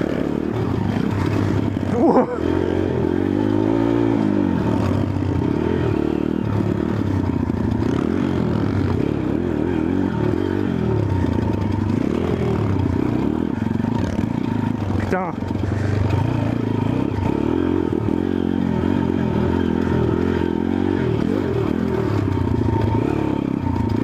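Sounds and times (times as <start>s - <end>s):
motorbike engine revving: 0.0s - 24.0s.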